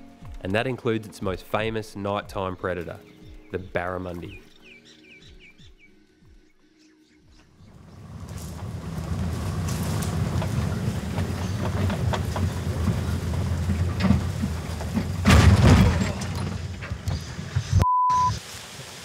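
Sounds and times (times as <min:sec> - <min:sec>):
vehicle rumbling over dirt track: 0:07.7 - 0:17.8
clattering crunch: 0:07.8 - 0:17.7
short bleep: 0:17.8 - 0:18.4.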